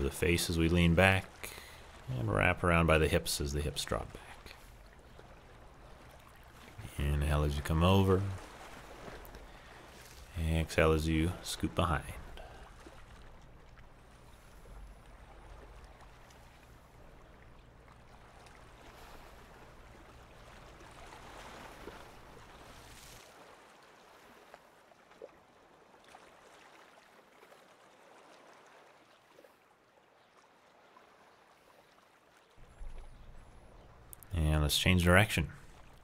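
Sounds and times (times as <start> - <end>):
small waves lapping on pebbles: 8.1 - 10.5, 12.3 - 34.2.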